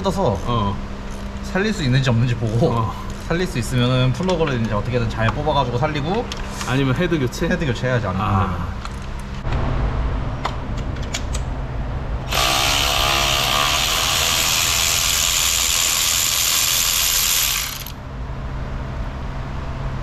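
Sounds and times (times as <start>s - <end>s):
electric ratchet whirring: 12.3s - 18.0s.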